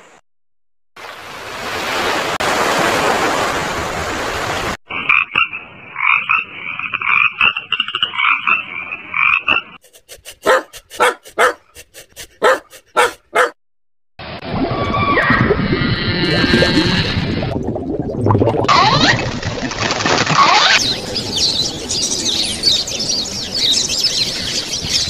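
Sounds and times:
frogs croaking: 0:04.9 - 0:09.8.

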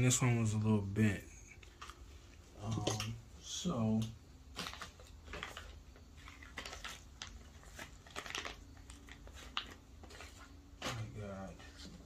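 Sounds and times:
plastic bag crinkling: 0:04.5 - 0:11.1.

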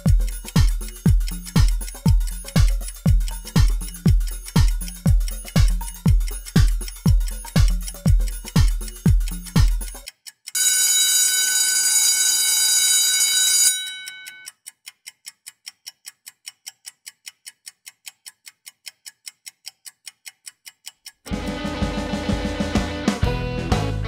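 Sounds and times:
clock ticking: 0:00.0 - 0:22.8
alarm clock ringing: 0:10.6 - 0:14.5
guitar music: 0:21.3 - 0:24.0.

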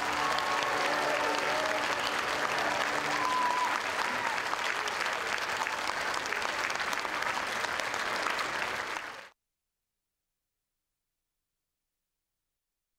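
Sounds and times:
audience applauding: 0:00.0 - 0:09.3.

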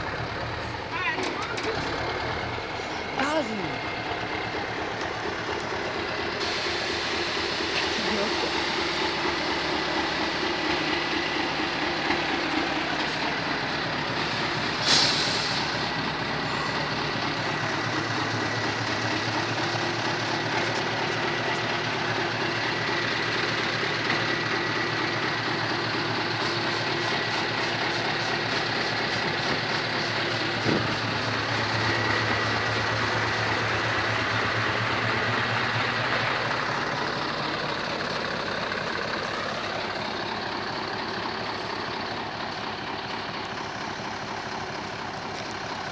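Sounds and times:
diesel engine idling: 0:00.0 - 0:45.9
brief hiss: 0:14.8 - 0:15.8.

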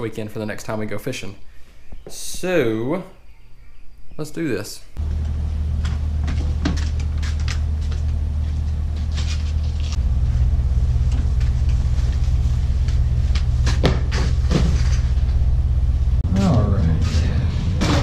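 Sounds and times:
low rumble: 0:05.0 - 0:18.0.

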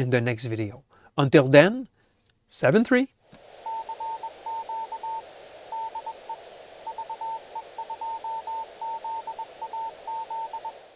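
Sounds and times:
steady hiss: 0:00.6 - 0:10.9
morse code tone: 0:03.6 - 0:10.9.

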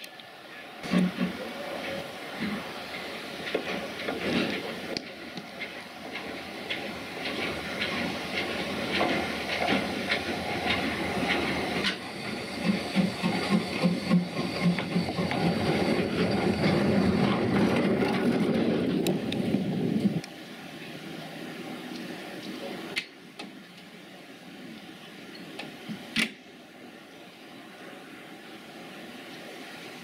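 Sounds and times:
steam hiss: 0:00.0 - 0:23.2, 0:23.9 - 0:30.0
rail noise: 0:00.0 - 0:30.0
steam locomotive exhaust beat: 0:00.8 - 0:20.6.

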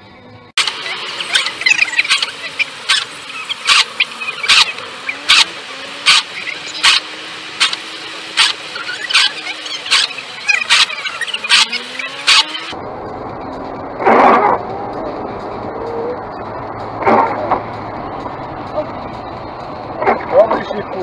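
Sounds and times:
wiper blades squeaking on glass: 0:00.8 - 0:07.0, 0:08.4 - 0:12.7.

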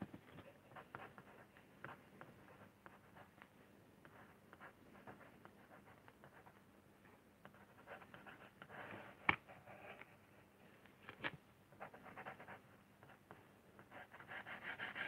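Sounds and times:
pen scratching on lino: 0:11.8 - 0:15.0.

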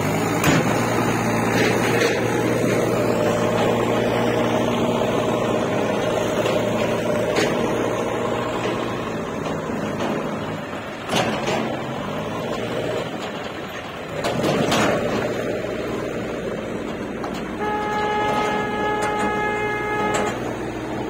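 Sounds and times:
tractor diesel engine under load: 0:00.0 - 0:21.0
vehicle horn blast: 0:17.6 - 0:20.8.

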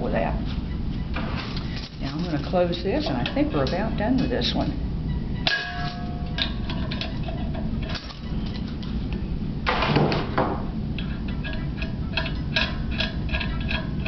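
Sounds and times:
handling metal regulator: 0:01.0 - 0:09.2, 0:10.9 - 0:14.0.

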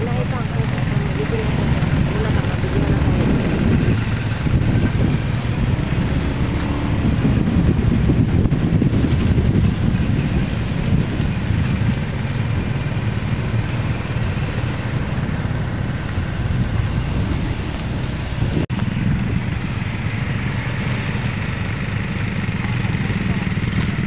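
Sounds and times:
vehicle engines and road rumble: 0:00.0 - 0:24.0.

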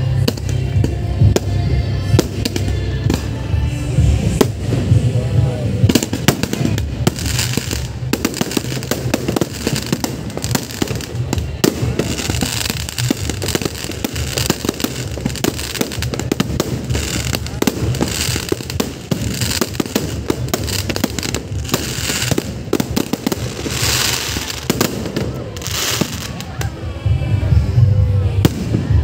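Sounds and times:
firework crackling: 0:00.0 - 0:29.0
loud bass-heavy music: 0:00.0 - 0:29.0.

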